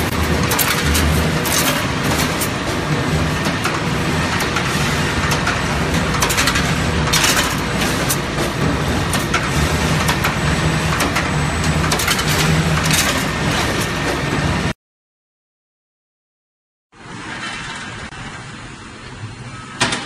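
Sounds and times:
machine motor hum: 0.0s - 14.8s.

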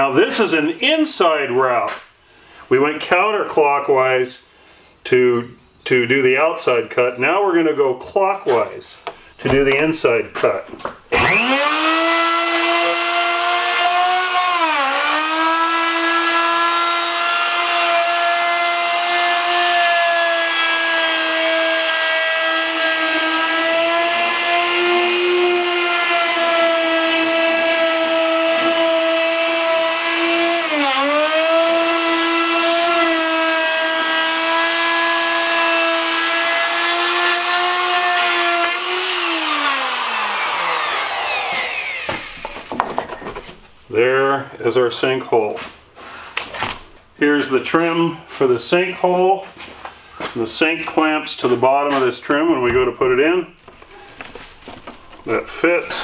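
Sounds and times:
electric router whine: 11.1s - 43.3s.

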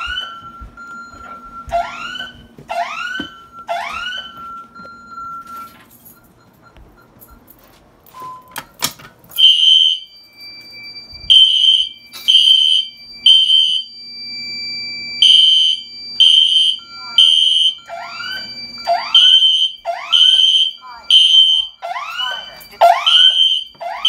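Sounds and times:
fire alarm horn pulsing: 0.0s - 5.8s, 9.3s - 24.0s
rising siren swoops: 21.8s - 24.0s.

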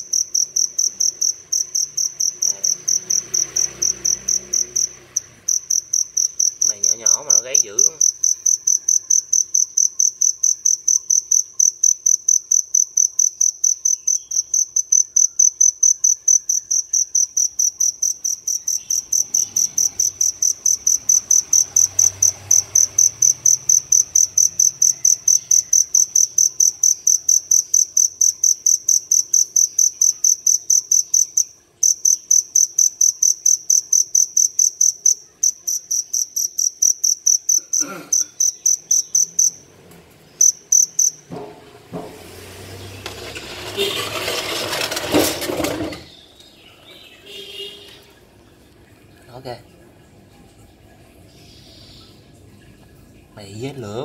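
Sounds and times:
cricket chirping: 0.0s - 39.7s, 40.3s - 42.0s.

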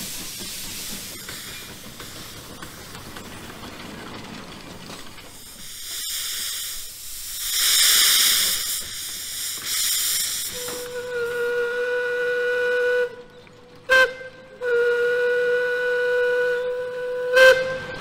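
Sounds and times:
steam hissing: 0.0s - 13.0s
steam whistle: 10.4s - 13.3s, 13.9s - 18.0s.

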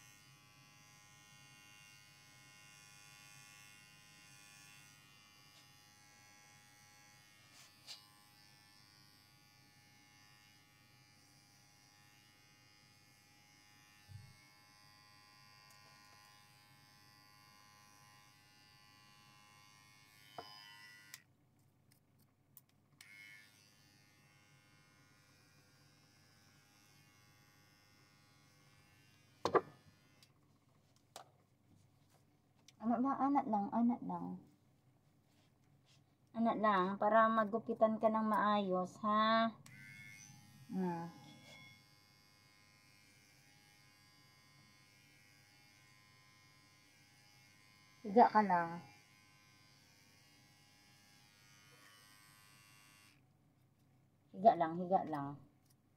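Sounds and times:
electric hair clippers buzzing: 0.0s - 21.2s, 23.0s - 30.3s, 39.6s - 53.2s.

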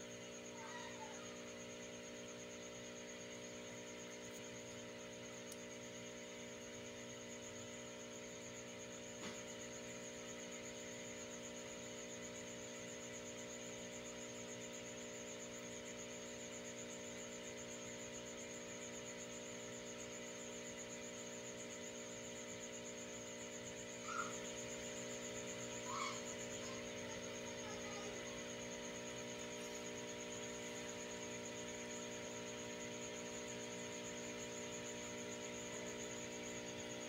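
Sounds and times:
electrical hum: 19.3s - 37.0s.

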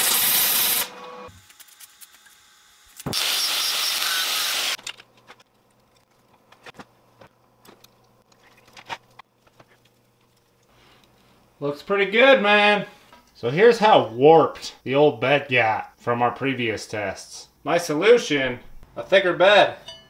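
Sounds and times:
angle grinder cutting steel: 0.0s - 1.4s, 3.0s - 4.8s
welding arc crackling: 0.0s - 4.8s.

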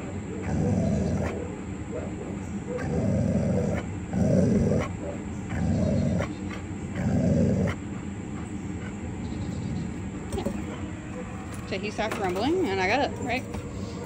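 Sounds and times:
dog growling low: 0.0s - 11.2s.

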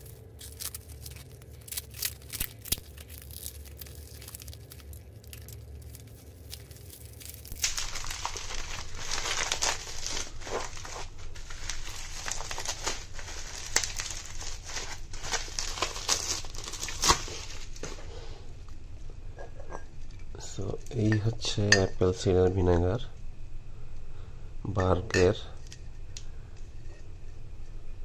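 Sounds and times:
bubble wrap crinkling: 0.0s - 18.3s.

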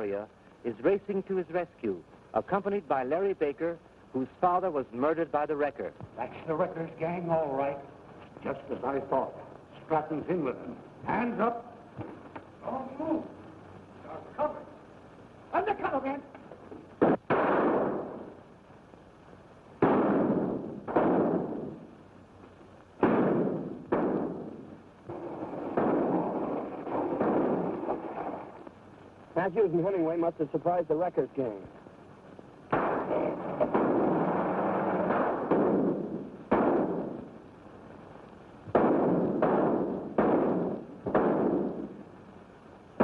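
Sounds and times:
gunshots with echoing tail: 17.0s - 18.3s, 19.8s - 21.9s, 23.0s - 28.0s, 32.7s - 37.3s, 38.7s - 42.0s.

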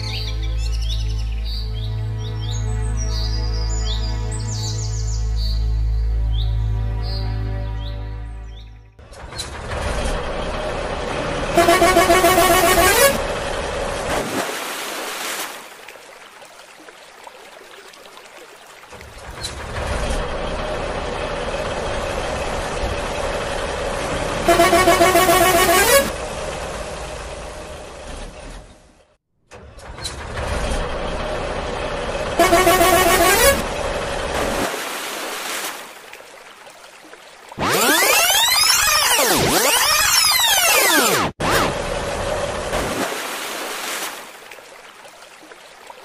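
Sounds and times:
truck engine running: 9.0s - 14.1s, 19.0s - 34.6s, 41.7s - 42.8s
loud multi-tone truck horn: 11.5s - 13.6s, 24.3s - 26.4s, 32.4s - 34.0s.

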